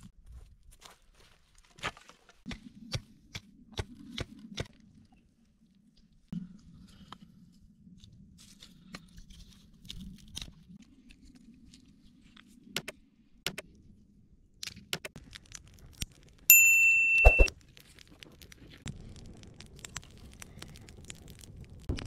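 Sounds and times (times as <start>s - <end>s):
high metallic ring: 16.5s - 17.5s.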